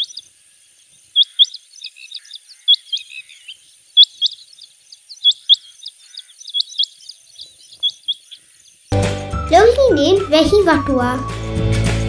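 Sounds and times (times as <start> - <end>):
faint chirps: 0.0 - 9.0
quail calling double notes: 1.1 - 8.7.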